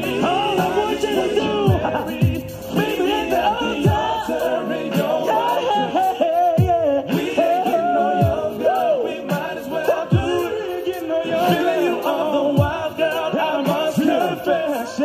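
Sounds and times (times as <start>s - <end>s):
male vocal group singing: 0.0s - 15.0s
slow backing track: 0.0s - 15.0s.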